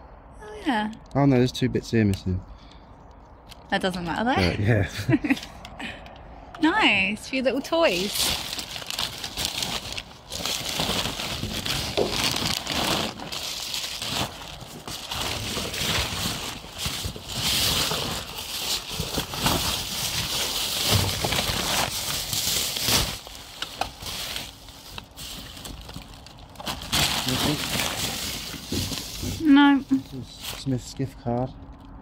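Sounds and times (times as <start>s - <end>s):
plastic bags crinkling: 7.7s - 30.8s.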